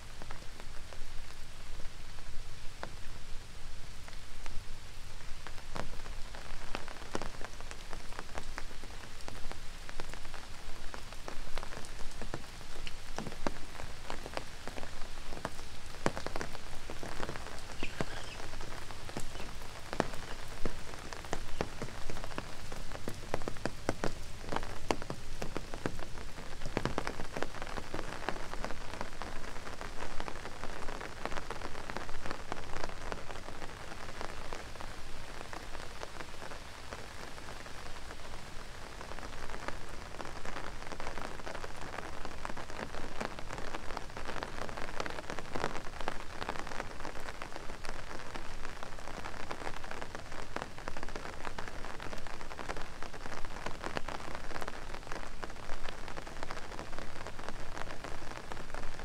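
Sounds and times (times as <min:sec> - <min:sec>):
steady rain hiss: 0:00.0 - 0:59.0
raindrops tapping: 0:05.5 - 0:30.2.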